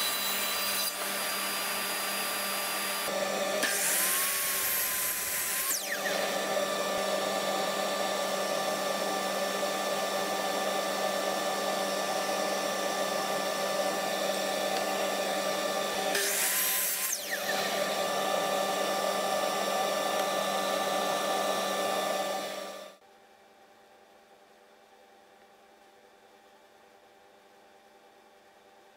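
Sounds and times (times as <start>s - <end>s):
dust extraction vacuum running: 0.0s - 23.0s
saw cutting through wood: 0.0s - 23.0s
saw motor whine: 0.0s - 23.0s.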